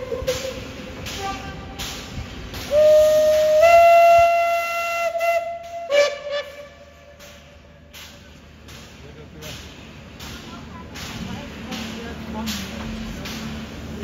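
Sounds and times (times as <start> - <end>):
steam locomotive whistle: 0.0 - 1.8, 2.7 - 7.4.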